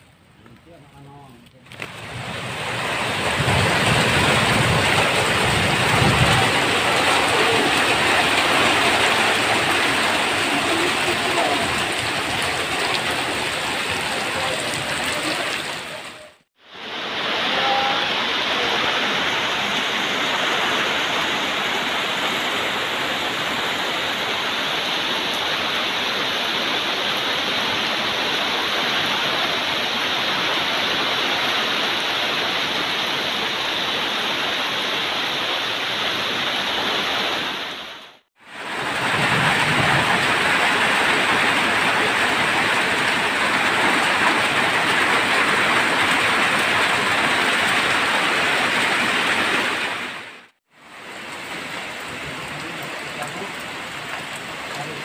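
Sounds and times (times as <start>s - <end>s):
heavy rain on leaves: 1.6s - 55.0s.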